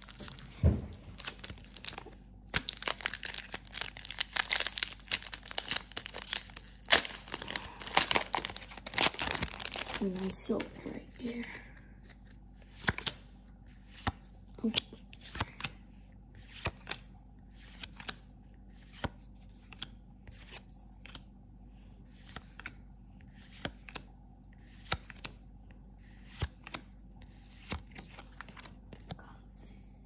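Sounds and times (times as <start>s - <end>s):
playing cards clicking and sliding: 16.4s - 21.3s, 22.1s - 25.4s, 26.0s - 29.2s.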